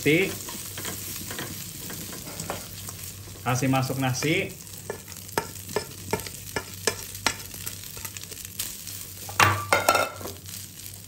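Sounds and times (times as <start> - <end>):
rice sizzling in oil: 0.0 - 11.0
spatula scraping a wok: 0.2 - 3.1, 4.2 - 10.2.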